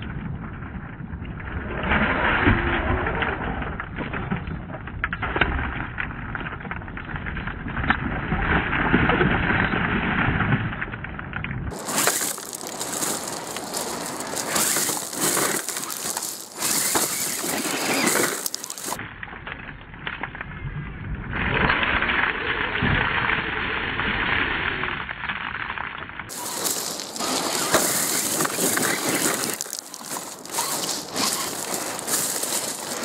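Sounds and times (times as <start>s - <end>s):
stones crunching under tyres: 11.7s - 19.0s, 26.3s - 33.0s.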